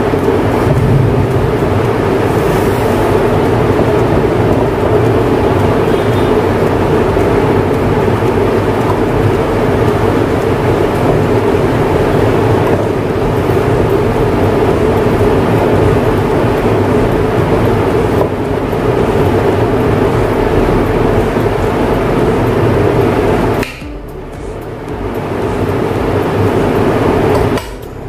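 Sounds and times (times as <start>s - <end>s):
steady loud rumbling noise: 0.0s - 28.0s.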